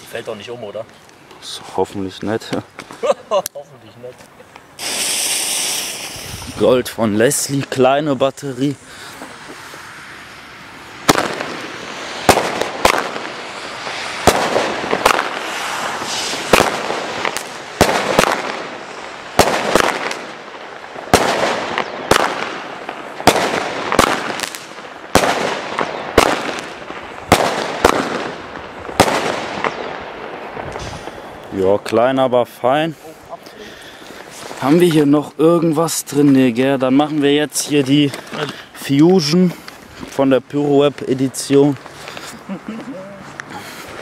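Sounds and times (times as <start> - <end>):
firework fuse hissing: 4.6 - 31.6, 33.0 - 35.0
firework shots bursting with crackle: 4.7 - 6.8, 8.8 - 31.5.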